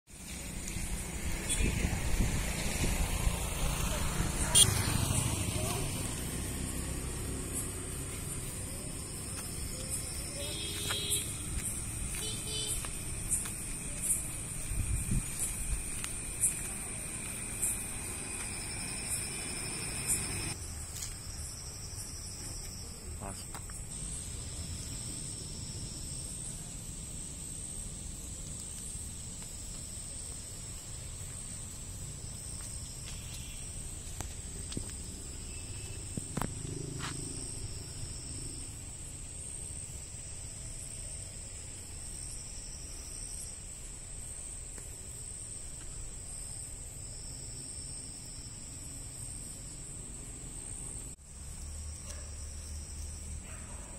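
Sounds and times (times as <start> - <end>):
high-pitched insect trill: 0.1 - 53.9
lower insect trill: 0.1 - 53.9.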